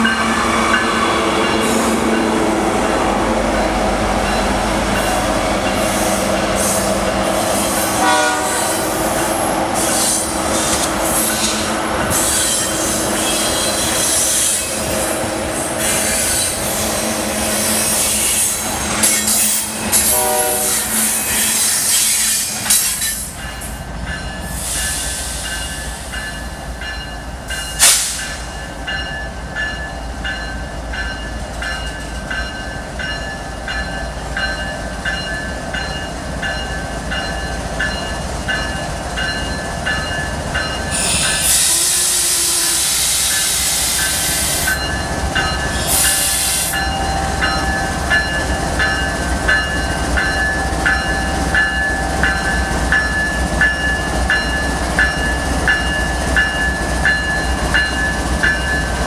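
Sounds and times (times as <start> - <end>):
diesel locomotives rumbling past: 0.0 - 59.0
air hissing blast: 27.8 - 28.5.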